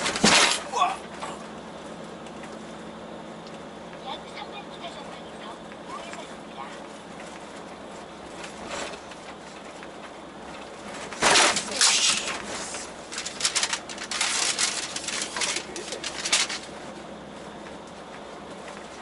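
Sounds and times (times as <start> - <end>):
loud jolt: 0.0 - 0.8, 11.1 - 14.6
steady driving hum: 0.0 - 19.0
truck body rattling and banging: 0.0 - 19.0.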